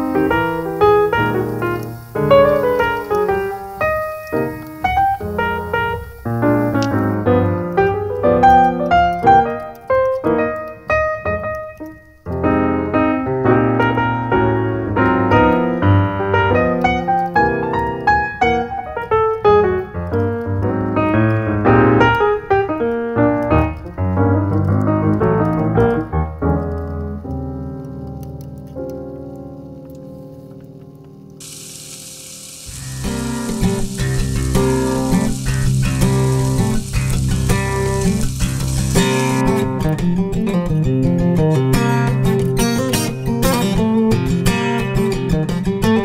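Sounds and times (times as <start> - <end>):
piano music: 0.0 - 44.7.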